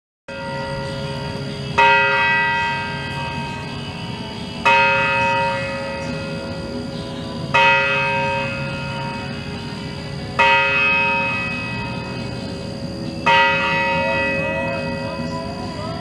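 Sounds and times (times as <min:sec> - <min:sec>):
clock tower bell striking: 0:00.3 - 0:16.0.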